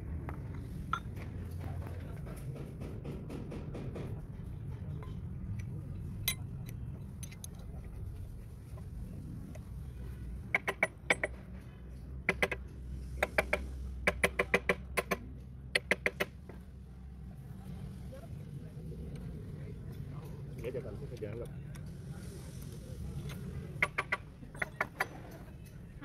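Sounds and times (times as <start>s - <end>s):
hammer and wrench tapping metal: 10.5s - 11.4s, 23.8s - 25.8s.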